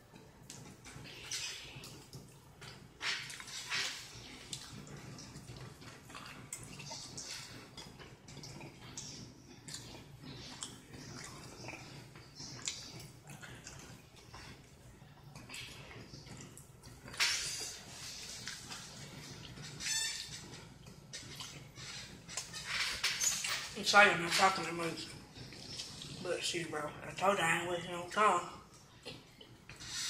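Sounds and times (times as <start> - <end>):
faint low hum: 0.0 - 30.0
chewing and lip-smacking: 0.1 - 23.6, 25.1 - 26.3.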